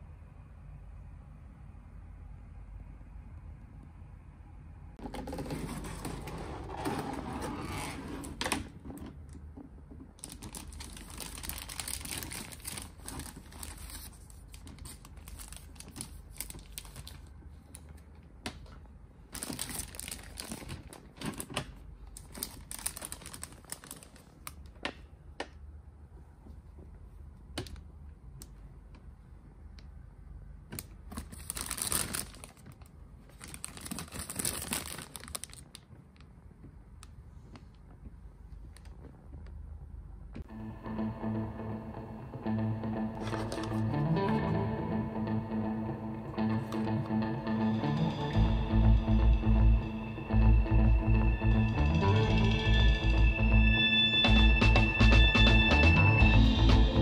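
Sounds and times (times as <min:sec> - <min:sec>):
plastic bag crinkling: 0:10.2 - 0:17.9, 0:19.3 - 0:24.7, 0:31.1 - 0:35.9, 0:43.2 - 0:43.8.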